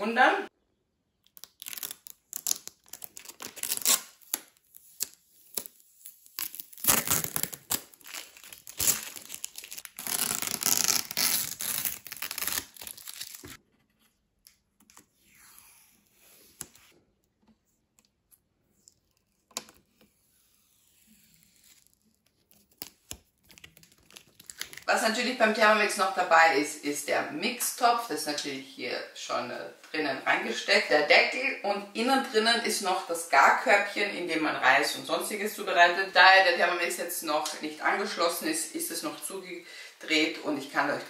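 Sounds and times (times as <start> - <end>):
plastic film crackling and tearing: 1.2 - 13.6, 18.8 - 24.9.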